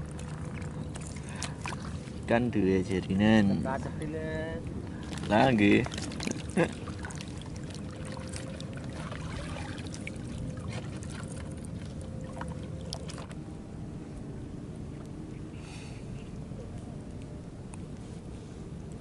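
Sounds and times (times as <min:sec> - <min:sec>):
small waves lapping: 0:00.0 - 0:13.5.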